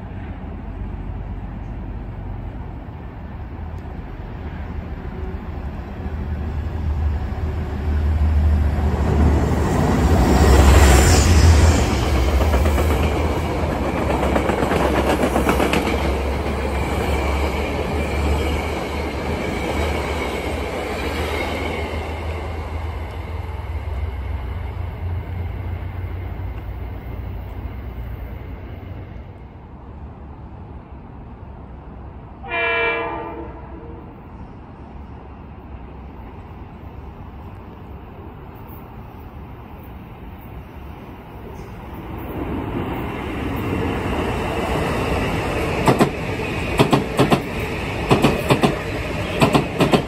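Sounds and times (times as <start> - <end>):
passenger train passing on rails: 0.0 - 50.0
train horn blast: 32.4 - 34.2.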